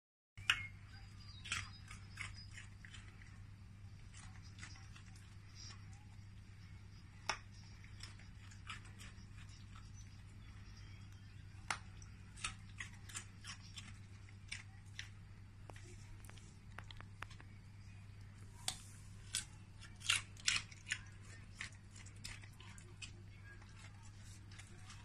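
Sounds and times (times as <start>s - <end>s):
dog crunching carrot: 0.4s - 10.9s, 11.6s - 17.4s, 18.6s - 25.0s
steady low hum: 0.4s - 25.0s.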